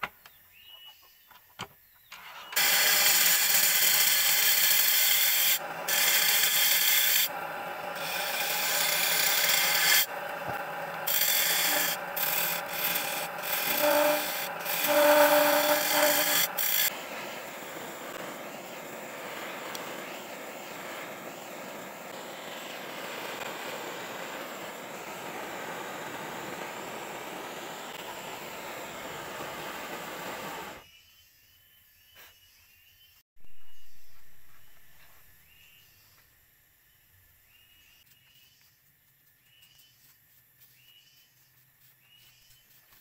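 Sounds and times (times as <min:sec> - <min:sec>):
lathe tool scraping spinning wood: 0:02.2 - 0:30.8
blowtorch flame hissing: 0:04.8 - 0:30.8.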